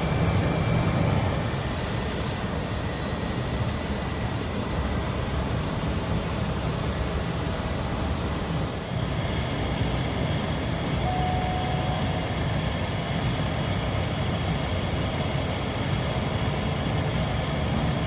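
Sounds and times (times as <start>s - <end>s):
turboprop engine running: 0.0s - 18.0s
thin tone: 11.0s - 12.4s.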